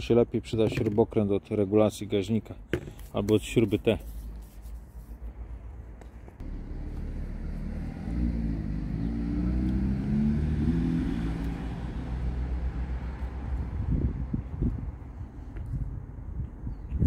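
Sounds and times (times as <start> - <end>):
vehicle engine rumble: 3.9 - 17.0.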